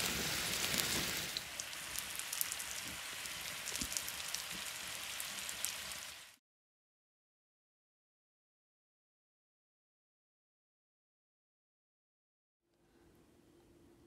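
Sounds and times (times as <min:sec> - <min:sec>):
small crackles and pops: 0:00.0 - 0:06.1
fruit sizzling in caramel: 0:00.0 - 0:06.4.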